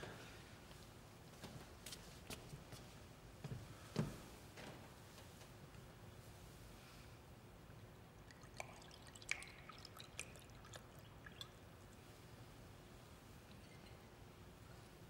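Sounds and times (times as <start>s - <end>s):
pouring from glass bottle: 8.3s - 11.6s.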